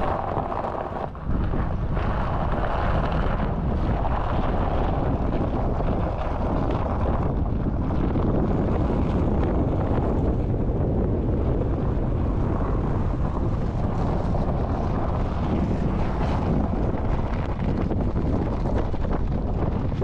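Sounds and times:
wind rush on microphone: 0:00.0 - 0:20.0.

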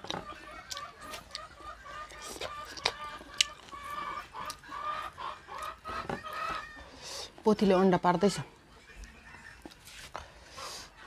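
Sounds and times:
hen clucking: 0:00.0 - 0:07.8.

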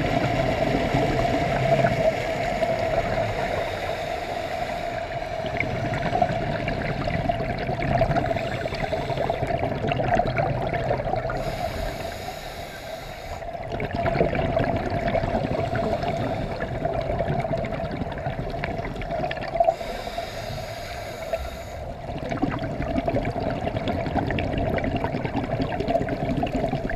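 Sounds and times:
steady hum: 0:00.0 - 0:23.7
regulator bubbling exhalations: 0:00.0 - 0:26.9
regulator hissing inhale: 0:02.2 - 0:05.7, 0:08.2 - 0:09.6, 0:11.3 - 0:13.6, 0:15.3 - 0:16.8, 0:19.6 - 0:22.0.

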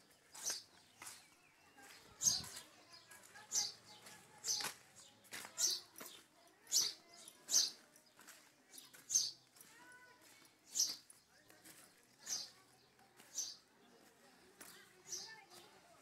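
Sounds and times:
footsteps squelching in wet mud: 0:00.1 - 0:06.3.

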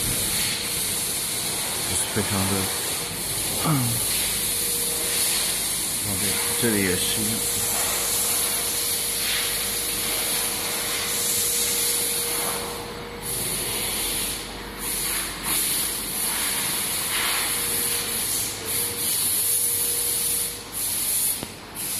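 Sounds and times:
factory hall hiss: 0:00.0 - 0:21.9.

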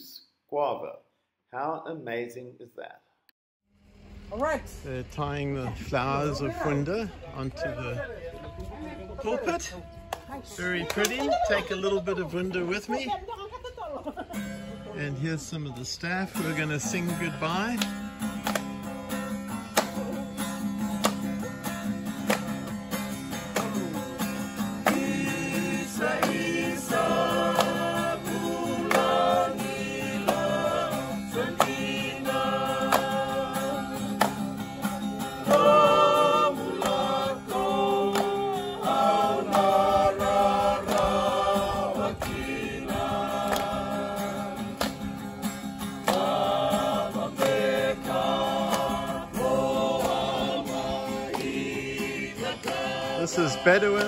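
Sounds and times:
strummed acoustic guitar: 0:14.3 - 0:54.0
group singing together: 0:19.5 - 0:54.0.

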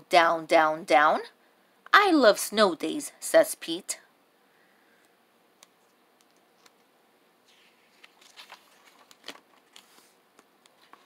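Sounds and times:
small clicks and taps: 0:05.0 - 0:06.9
book pages turning: 0:07.4 - 0:11.0.

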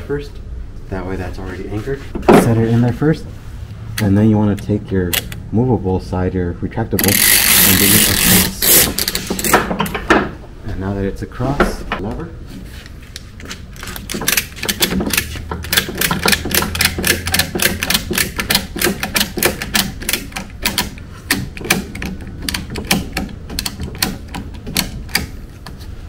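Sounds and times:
ratchet strap clicking: 0:07.0 - 0:09.6, 0:13.8 - 0:25.8.

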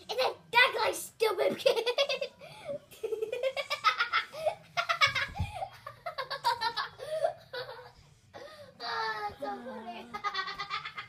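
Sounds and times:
children giggling: 0:01.6 - 0:08.0, 0:10.1 - 0:11.0.

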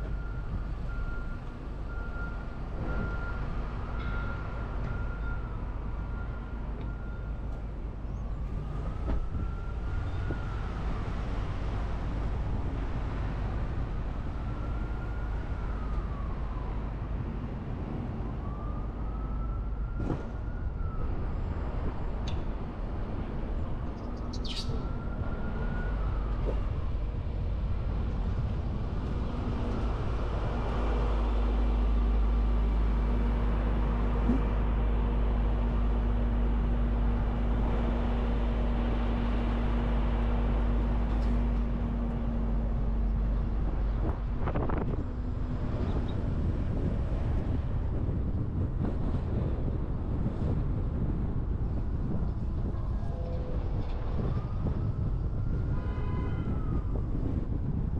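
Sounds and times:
car engine and road rumble: 0:00.0 - 0:57.9
emergency siren wailing: 0:01.9 - 0:13.4, 0:14.1 - 0:22.1, 0:24.7 - 0:27.3, 0:52.0 - 0:57.8.

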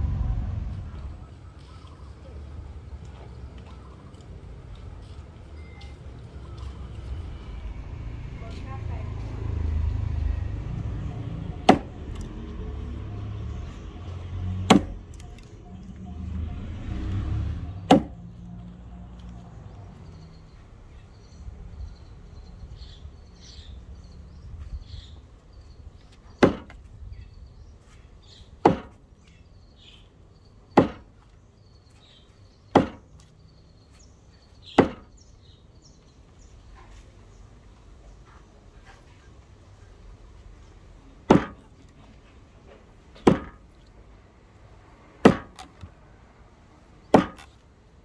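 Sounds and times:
axe chopping wood: 0:11.6 - 0:12.2, 0:14.6 - 0:15.2, 0:17.8 - 0:18.2, 0:26.4 - 0:26.8, 0:28.6 - 0:29.0, 0:30.8 - 0:31.2, 0:32.7 - 0:33.1, 0:34.7 - 0:35.1, 0:41.2 - 0:41.7, 0:43.1 - 0:43.7, 0:45.2 - 0:45.9, 0:47.0 - 0:47.6.

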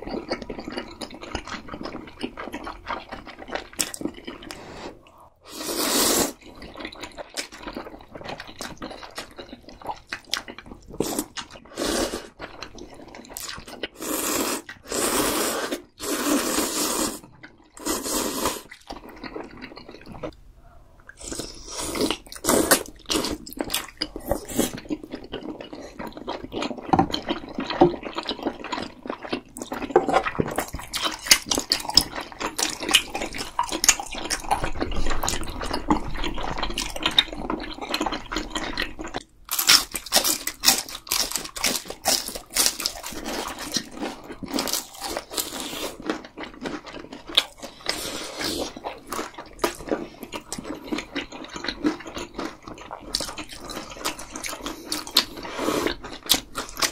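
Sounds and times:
wet chewing and smacking: 0:00.0 - 0:04.6, 0:06.4 - 0:11.7, 0:12.3 - 0:14.0, 0:18.7 - 0:20.4, 0:21.0 - 0:56.9
noodle slurping: 0:04.4 - 0:06.4, 0:13.9 - 0:17.2, 0:17.8 - 0:18.8
food crunching: 0:21.1 - 0:56.9.

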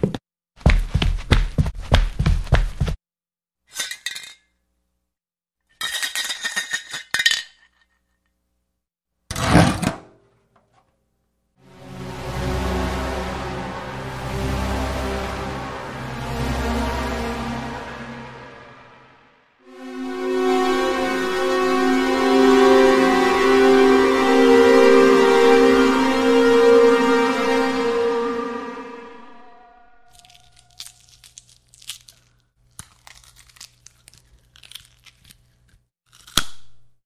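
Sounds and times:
crunching and tearing crackles: 0:30.1 - 0:36.5.

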